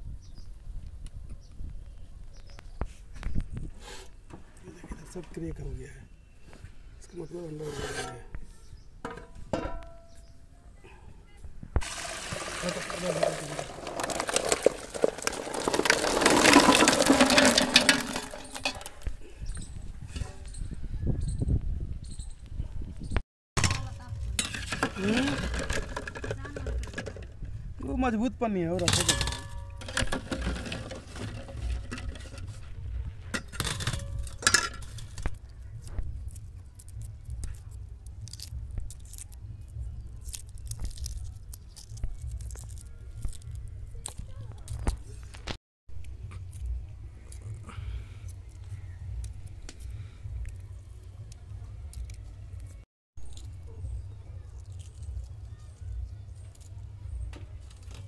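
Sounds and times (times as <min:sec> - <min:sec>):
water pouring into a metal pot: 0:11.8 - 0:18.7
eggshell crackling: 0:11.8 - 0:19.1, 0:34.1 - 0:47.5.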